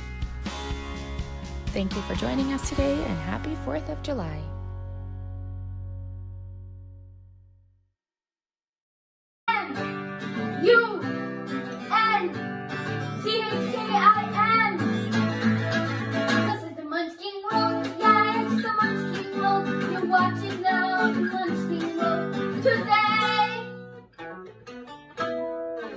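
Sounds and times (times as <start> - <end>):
strummed acoustic guitar: 0.0 - 4.5, 9.5 - 16.8, 17.5 - 25.9.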